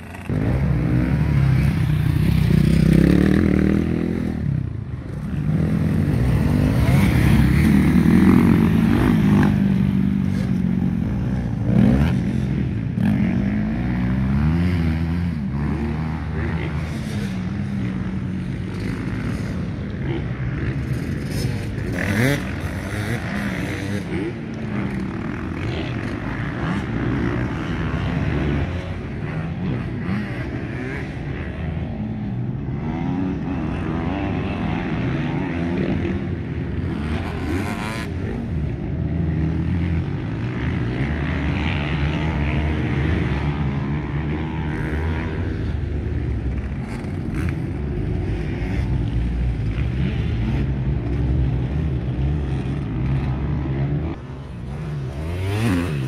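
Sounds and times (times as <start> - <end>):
motocross bike engines: 0.0 - 56.0
bike revving sharply: 18.8 - 32.2, 32.8 - 56.0.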